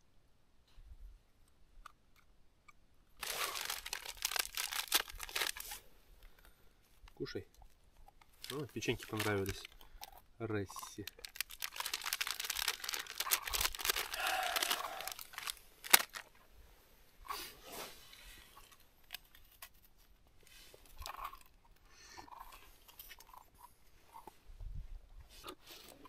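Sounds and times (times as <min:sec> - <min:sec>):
cookie crunching: 0:03.2 - 0:05.8, 0:08.5 - 0:10.1, 0:10.7 - 0:16.3
plastic wrapper crinkling and tearing: 0:03.2 - 0:05.8, 0:08.2 - 0:10.2, 0:10.8 - 0:16.4.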